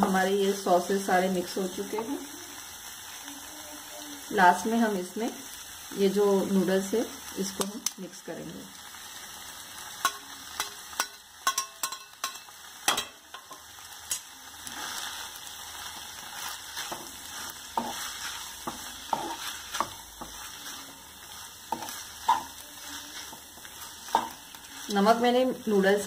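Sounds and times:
noodles sizzling in wok: 0.0s - 26.0s.

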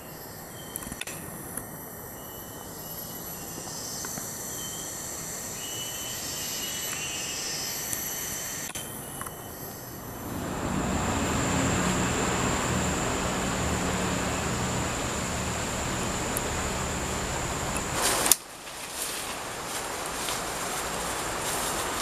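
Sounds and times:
high-pitched insect drone: 0.0s - 18.4s
faint chirps: 2.0s - 18.0s
rushing noise with low rumble: 10.0s - 18.3s.

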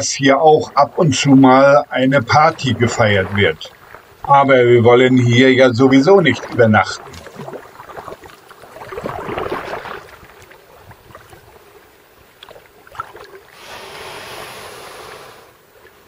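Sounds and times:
kayak paddle strokes in water: 5.3s - 16.0s
water dripping off paddle: 6.3s - 11.6s, 12.3s - 13.7s.

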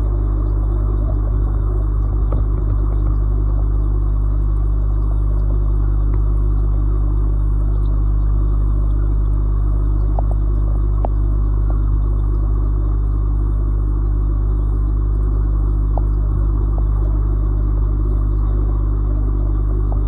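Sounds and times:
aquarium equipment humming: 0.0s - 20.0s.

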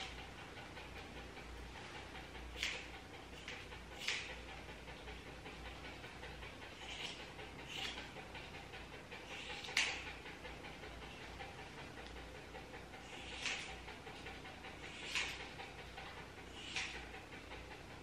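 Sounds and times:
dog panting: 0.0s - 18.0s
scissors snipping hair: 2.5s - 4.5s, 6.8s - 8.0s, 9.4s - 10.2s, 13.2s - 13.8s, 14.9s - 15.4s, 16.6s - 17.2s.

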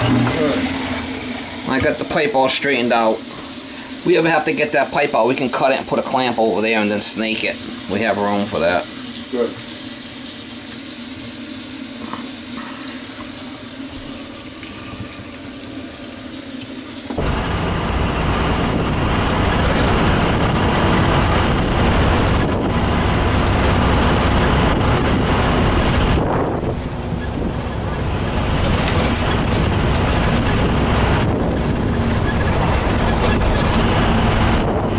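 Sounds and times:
tap water running into sink: 0.0s - 17.2s
wind and road noise in vehicle: 17.2s - 34.9s.

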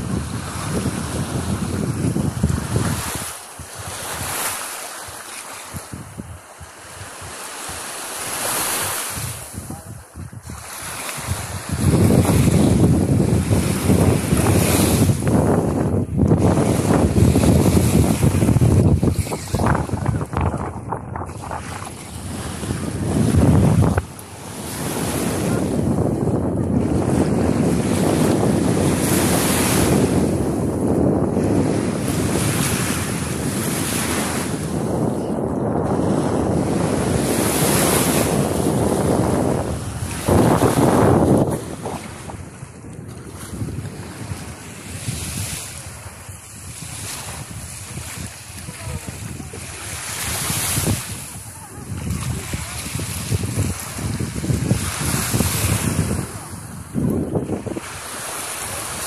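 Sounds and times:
small waves on sandy shore: 0.0s - 59.0s
wind buffeting microphone: 0.0s - 59.0s
small waves lapping: 2.0s - 12.7s, 39.7s - 56.9s, 57.6s - 59.0s.

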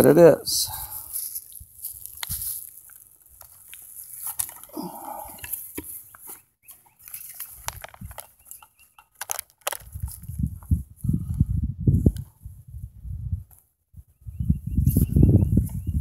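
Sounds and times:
gear handling clicks and knocks: 3.4s - 10.7s.

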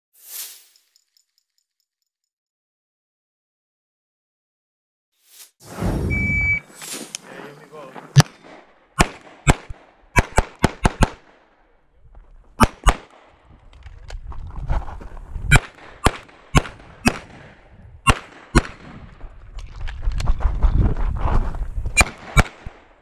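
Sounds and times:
shooter scuffling: 6.6s - 8.6s
pistol shots: 8.2s - 11.5s, 12.6s - 13.3s, 15.5s - 19.1s, 22.0s - 22.9s.

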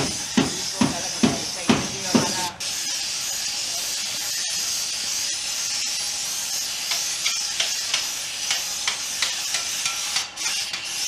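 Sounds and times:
paint spray gun hissing: 4.0s - 10.0s.

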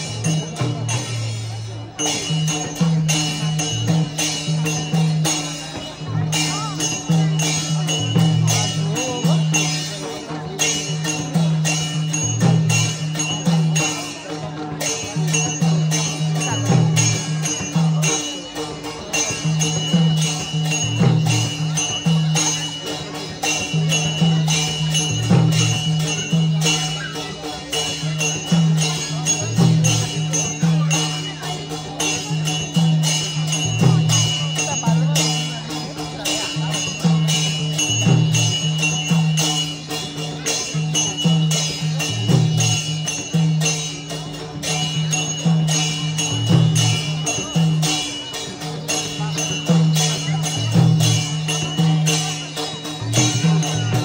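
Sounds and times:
hand cymbal clashes: 0.0s - 54.0s
low drum beat: 0.0s - 54.0s.

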